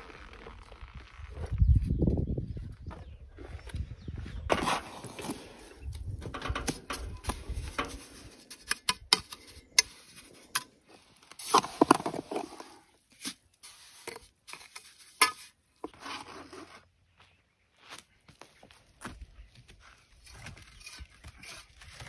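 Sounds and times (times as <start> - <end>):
trowel scraping wet mortar: 4.5 - 16.8, 20.2 - 22.0.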